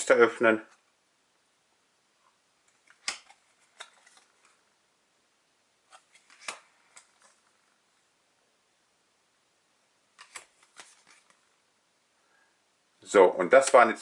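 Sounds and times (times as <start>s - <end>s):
cards flicking and tapping: 2.7s - 4.6s, 5.9s - 7.5s, 10.2s - 11.4s.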